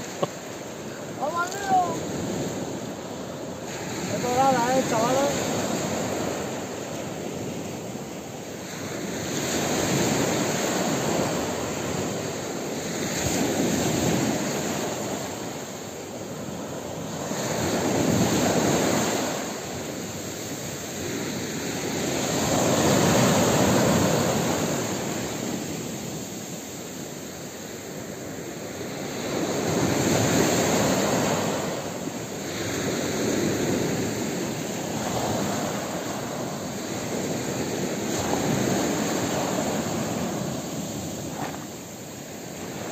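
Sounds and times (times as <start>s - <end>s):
waves breaking on beach: 0.0s - 42.9s.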